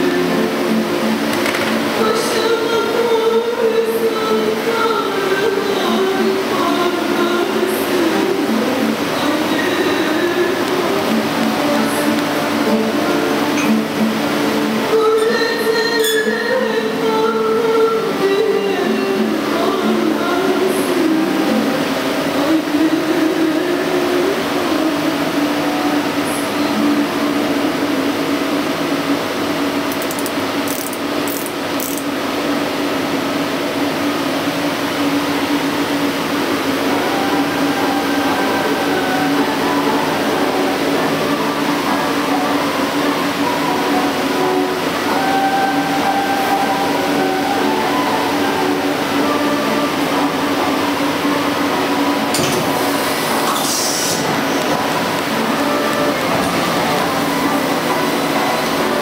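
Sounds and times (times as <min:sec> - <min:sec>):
lathe mechanical hum and whine: 0:00.0 - 0:59.0
hiss: 0:52.8 - 0:54.6.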